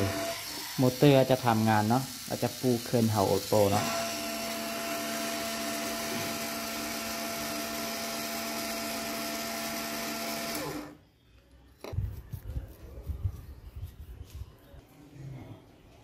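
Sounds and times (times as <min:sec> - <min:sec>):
small motor whining: 0:00.0 - 0:11.0.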